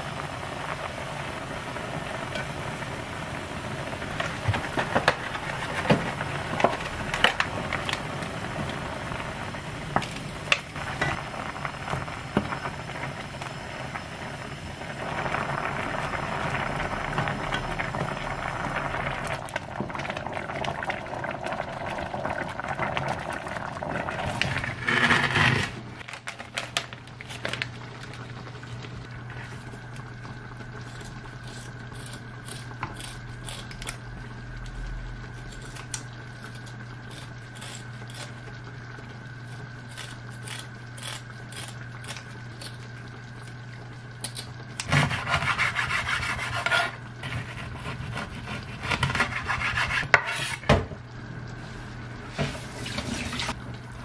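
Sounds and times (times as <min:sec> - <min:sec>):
steady low hum: 0:00.0 - 0:24.8
curry bubbling in a pot: 0:00.0 - 0:26.3, 0:26.9 - 0:54.0.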